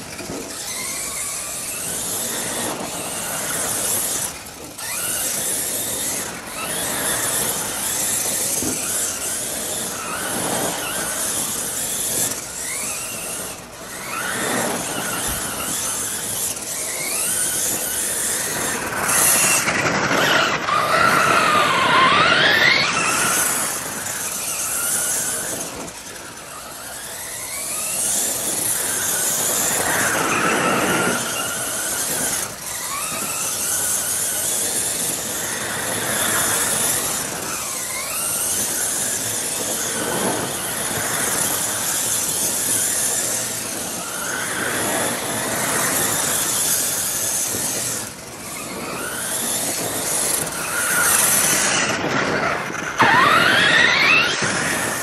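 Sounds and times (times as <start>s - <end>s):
toy truck motor whine: 0.0s - 55.0s.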